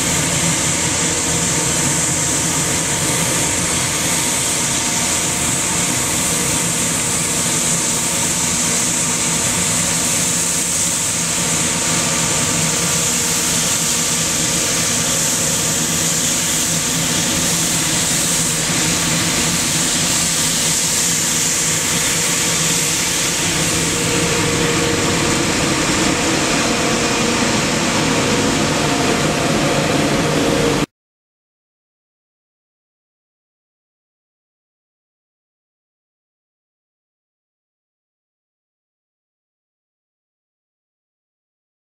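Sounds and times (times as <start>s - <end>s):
diesel engine running: 0.0s - 30.9s
sweeping brush hissing: 0.0s - 30.9s.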